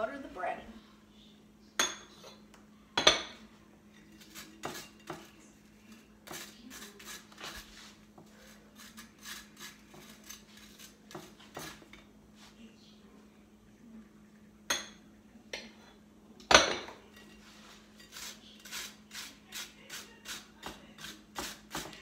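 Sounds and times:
knife scraping butter on toast: 4.1 - 5.3, 5.9 - 11.9, 18.0 - 21.9.

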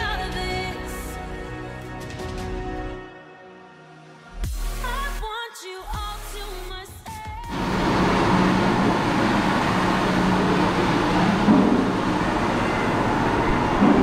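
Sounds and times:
music: 0.0 - 7.6
vehicle rumble: 7.5 - 14.0.

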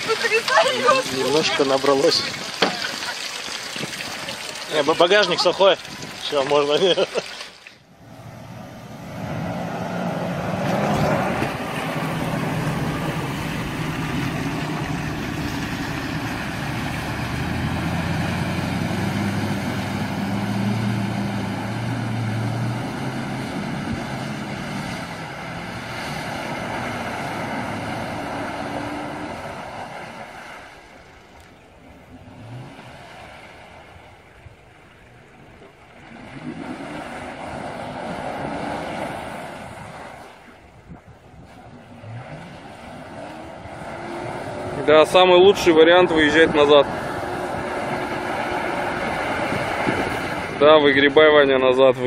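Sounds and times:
water sloshing and rushing: 0.0 - 52.0
engine running under load: 8.0 - 30.8, 41.4 - 52.0.

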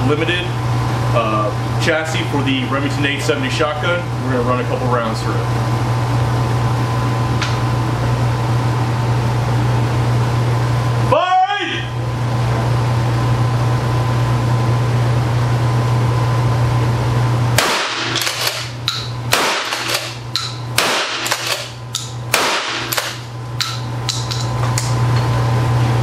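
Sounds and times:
shotgun shots: 17.6 - 18.7, 19.3 - 20.2, 20.8 - 21.7, 22.3 - 23.2.

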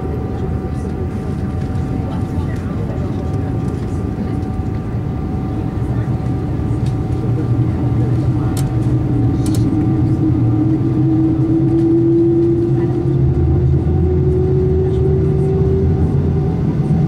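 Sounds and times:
jet engines humming and whining: 0.0 - 17.0.

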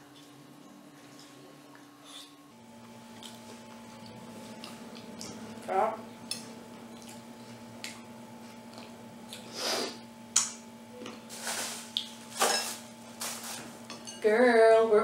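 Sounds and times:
faint steady hum: 0.0 - 15.0
food rustling and handling: 11.2 - 13.9.

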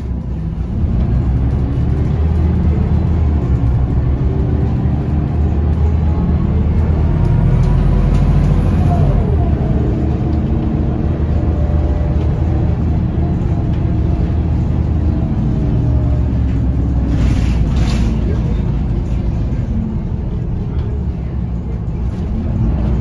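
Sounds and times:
bus diesel engine running: 0.0 - 23.0.

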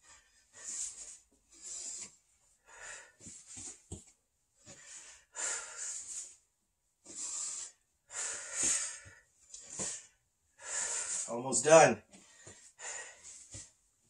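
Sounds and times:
man breathing out with effort: 4.6 - 6.4, 7.1 - 11.3, 12.2 - 13.7.

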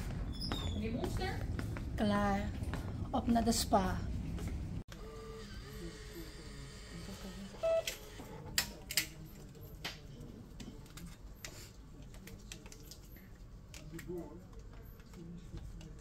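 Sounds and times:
low room hum: 0.0 - 7.0.

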